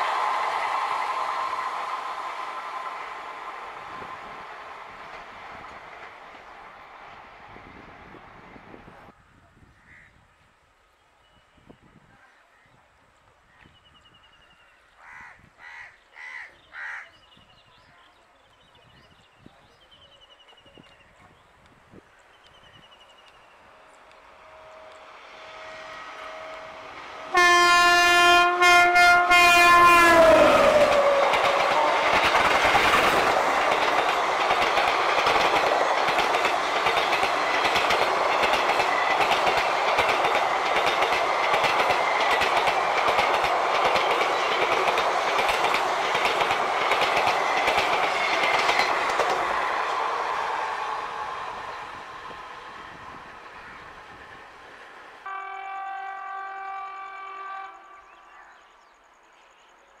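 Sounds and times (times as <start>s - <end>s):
train clattering over rails: 0.0s - 8.2s, 23.9s - 54.6s
locomotive air horn blasts: 24.4s - 32.2s, 55.2s - 58.1s.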